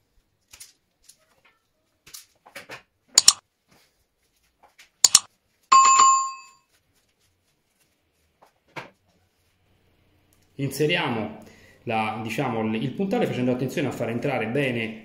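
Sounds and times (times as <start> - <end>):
wire stripper clicking and snapping: 3.2 - 3.4, 5.0 - 5.3
bell-like metallic ring: 5.7 - 6.6.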